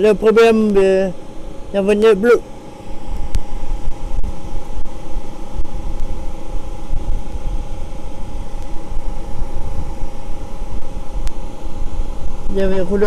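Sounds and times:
furnace burner rumbling: 0.0s - 13.0s
steady hum: 0.0s - 13.0s.

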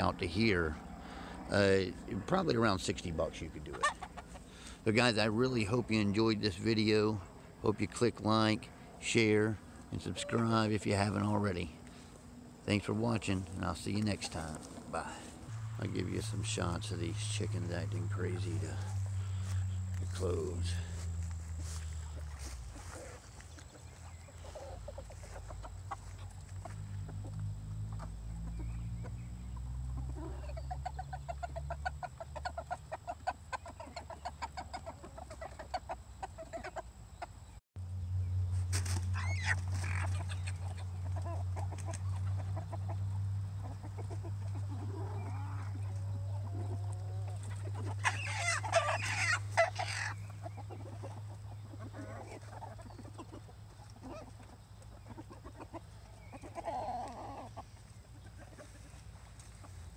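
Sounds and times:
chickens clucking: 0.0s - 37.6s, 38.5s - 59.9s.

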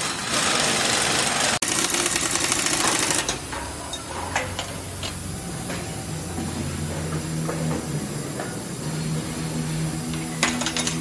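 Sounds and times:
pneumatic air tool rattling: 0.0s - 5.2s
workshop noise: 0.0s - 11.0s
low hum: 3.5s - 11.0s.

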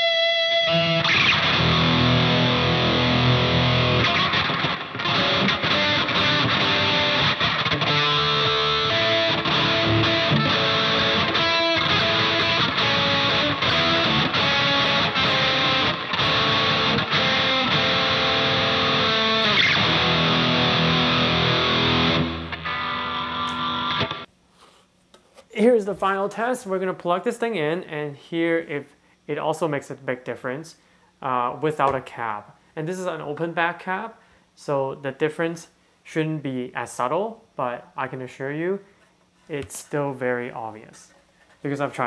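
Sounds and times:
distorted electric guitar: 0.0s - 24.3s.

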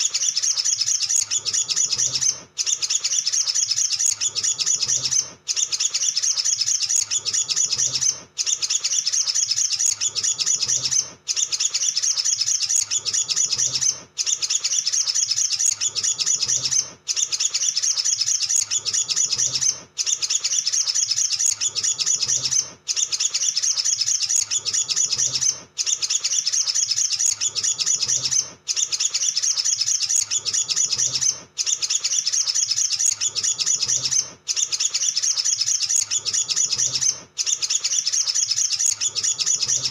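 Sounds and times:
bird twittering song: 0.0s - 39.9s.

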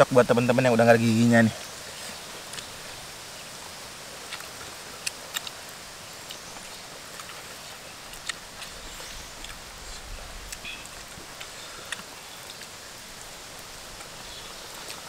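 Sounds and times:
steady outdoor hiss: 0.0s - 15.0s
chewing smacks: 4.2s - 5.6s, 6.2s - 12.8s
fingers picking at food: 4.3s - 5.6s.

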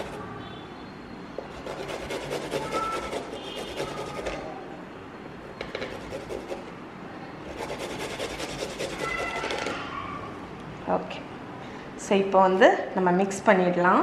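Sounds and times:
garlic rasping on metal grater: 1.5s - 4.5s, 7.5s - 9.7s.

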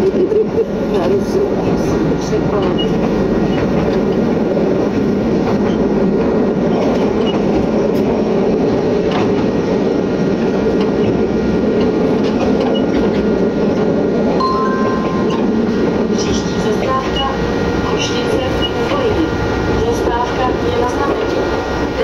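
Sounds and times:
train running at speed: 0.0s - 22.0s
steady higher tone: 14.4s - 16.1s.

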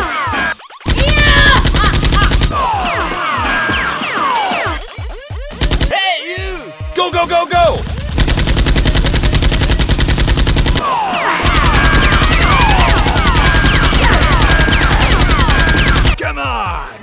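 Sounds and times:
rapid automatic gunfire: 0.8s - 3.1s, 5.4s - 5.9s, 7.8s - 16.2s.

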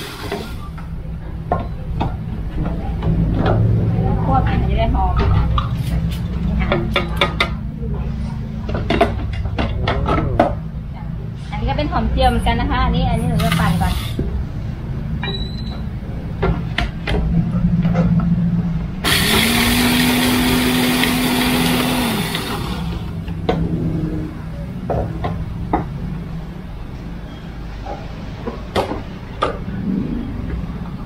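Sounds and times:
electric blender whirring: 0.0s - 0.6s, 19.0s - 23.2s
low steady hum: 29.1s - 31.0s.

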